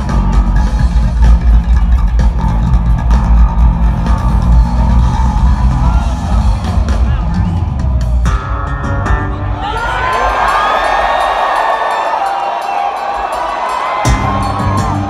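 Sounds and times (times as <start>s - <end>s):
live rock band playing: 0.0s - 9.9s, 12.7s - 15.0s.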